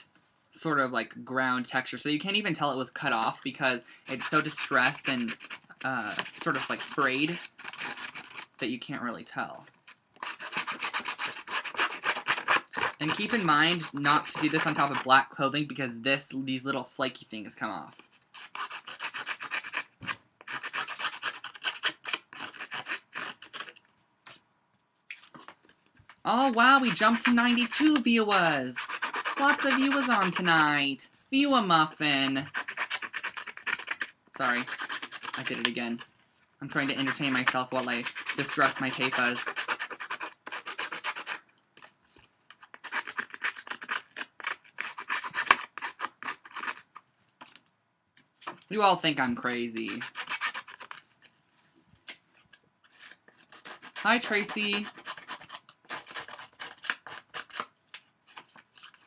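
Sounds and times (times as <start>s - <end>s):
blade scraping paper edges: 4.1s - 8.6s, 9.9s - 15.1s, 18.0s - 23.8s, 26.3s - 30.6s, 32.3s - 36.1s, 36.7s - 41.9s, 42.5s - 47.0s, 49.7s - 51.2s, 52.8s - 59.0s.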